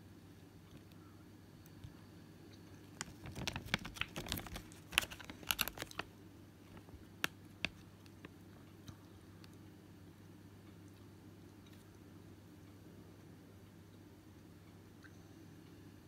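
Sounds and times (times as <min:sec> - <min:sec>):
paperboard box clicks and crinkles: 0:03.0 - 0:06.1.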